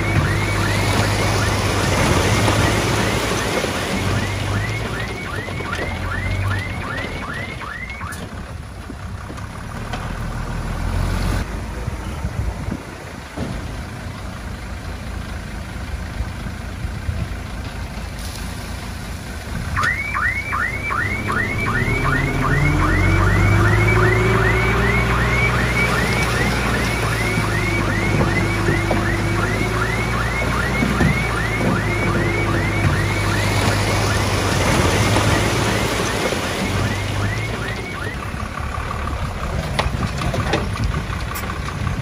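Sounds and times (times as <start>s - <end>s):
vehicle warning alarm chirps: 0.0s - 8.2s, 19.8s - 38.4s
heavy diesel machinery running: 0.0s - 19.8s, 20.6s - 42.0s
engine speeding up: 20.8s - 40.0s.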